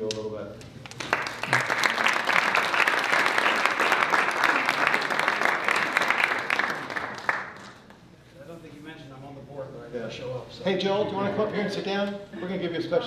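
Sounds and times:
crowd clapping: 0.8s - 8.0s.

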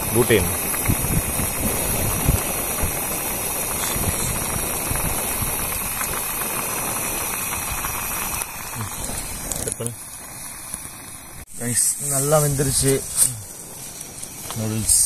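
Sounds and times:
gas stove burner hissing roar: 0.0s - 15.0s.

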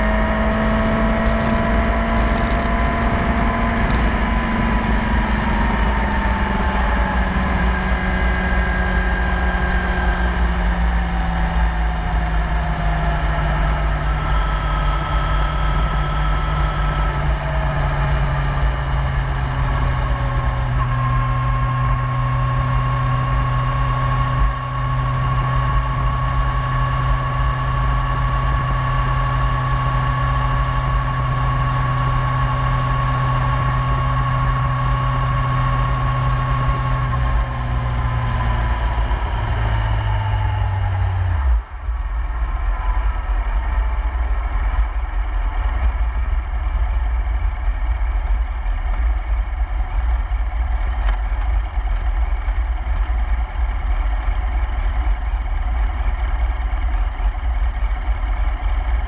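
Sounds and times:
wind rush: 0.0s - 9.3s
high engine whine: 0.0s - 59.0s
motorcycle engine cruising: 0.0s - 59.0s.

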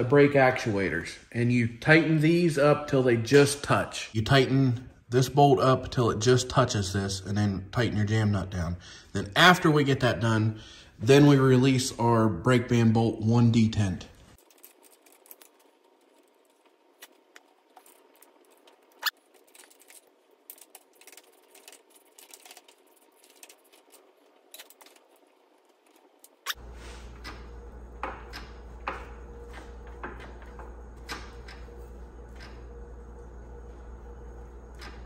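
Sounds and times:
steady low hum: 20.0s - 35.0s.

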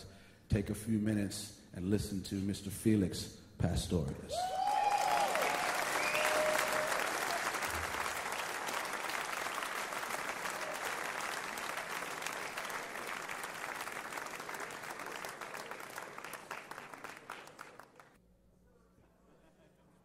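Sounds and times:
audience applauding: 4.5s - 18.2s.

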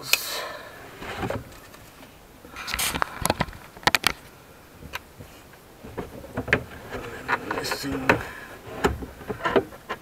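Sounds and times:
rustle: 0.0s - 10.0s
sharp clicks and knocks: 2.7s - 10.0s.

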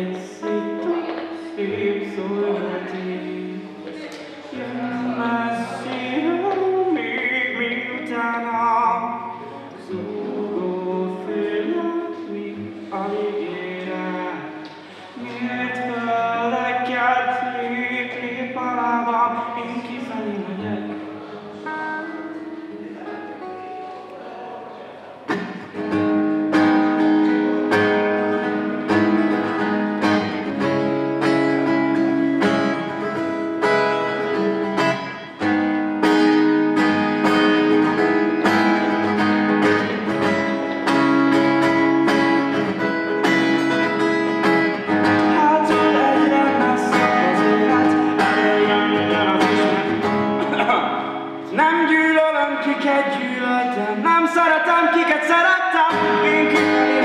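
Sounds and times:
man singing: 0.0s - 22.2s, 43.2s - 57.0s
acoustic guitar strumming: 0.0s - 57.0s.

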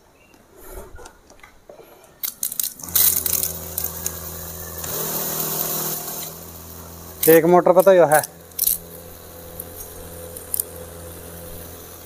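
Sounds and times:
electric pump humming: 2.2s - 12.0s
spray gun hissing water: 2.8s - 12.0s.

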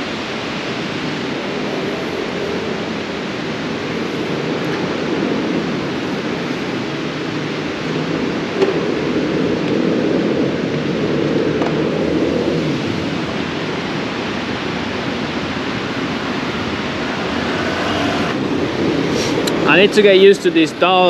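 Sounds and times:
rushing wind on microphone: 0.0s - 21.0s.

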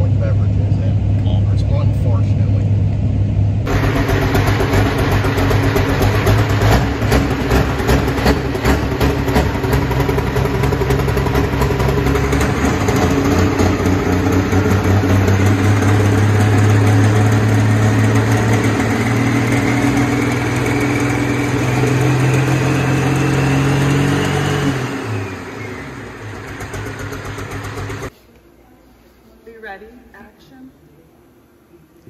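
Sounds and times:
tractor engine running: 3.0s - 28.1s.

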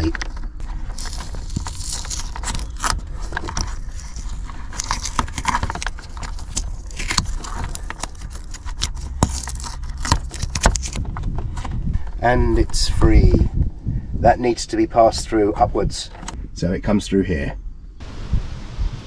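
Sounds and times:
tape peeling off wiring: 0.0s - 11.8s
wire harness handled by hand: 0.0s - 12.2s
low steady rumble: 0.0s - 16.9s.

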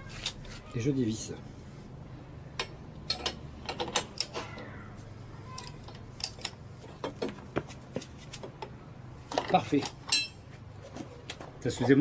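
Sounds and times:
metal clinks: 10.1s - 10.4s.

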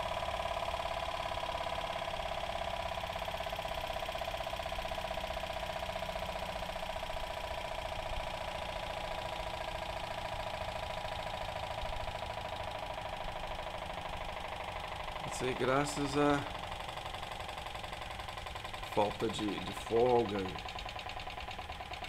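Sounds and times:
small engine fast mechanical beat: 0.0s - 22.0s
steady whir: 0.0s - 22.0s.

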